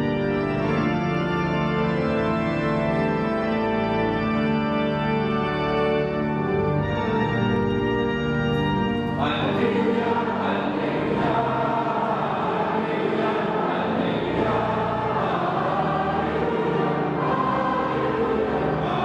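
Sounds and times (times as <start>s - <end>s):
church organ chords: 0.0s - 19.0s
priest chanting into microphone: 9.2s - 19.0s
voices singing: 9.2s - 19.0s.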